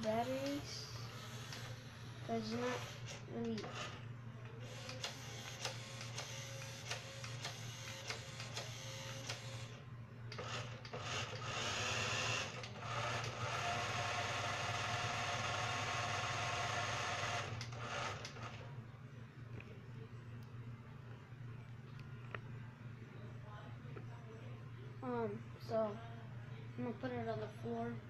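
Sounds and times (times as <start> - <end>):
toy car motor whining: 1.1 - 4.0, 10.4 - 18.3.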